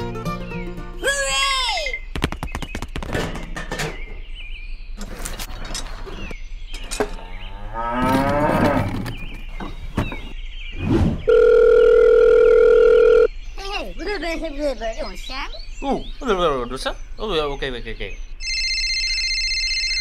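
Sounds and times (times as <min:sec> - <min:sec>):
cow mooing: 0:07.4 - 0:09.0
telephone dial tone: 0:11.3 - 0:13.3.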